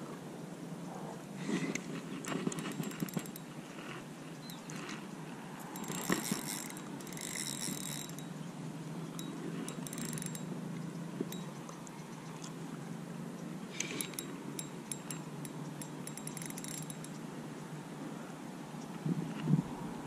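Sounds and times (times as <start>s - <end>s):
fishing reel clicking: 2.2s - 5.0s, 5.6s - 8.4s, 9.1s - 10.5s, 11.2s - 11.9s, 13.8s - 17.2s.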